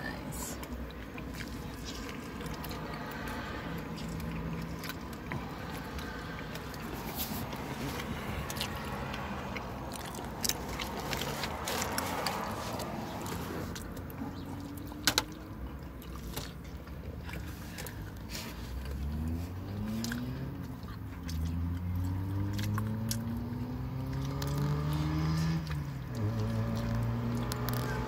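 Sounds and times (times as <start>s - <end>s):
car engine humming: 0.0s - 28.0s.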